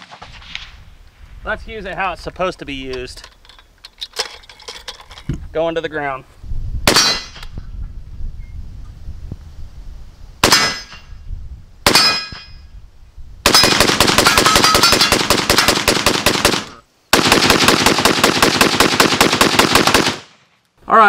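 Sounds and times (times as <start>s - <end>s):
rifle shots: 6.9s - 7.4s, 10.4s - 11.0s, 11.8s - 12.3s, 13.4s - 20.4s
steel target ringing: 11.9s - 12.7s
rapid automatic gunfire: 13.5s - 20.3s.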